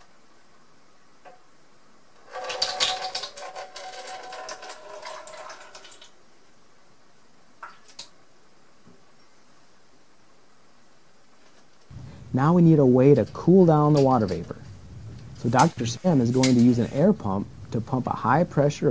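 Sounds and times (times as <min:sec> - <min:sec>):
water pouring into plastic bottle: 0:02.2 - 0:06.2.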